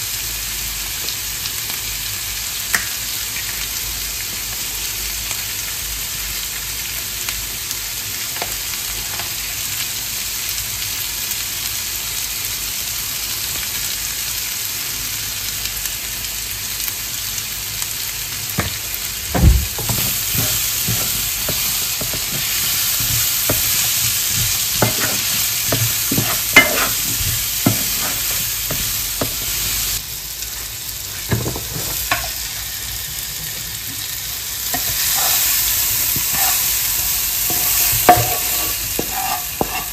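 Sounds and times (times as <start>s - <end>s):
food sizzling in a pan: 0.0s - 39.9s
utensil knocking against pan: 18.6s - 29.5s, 37.5s - 39.9s.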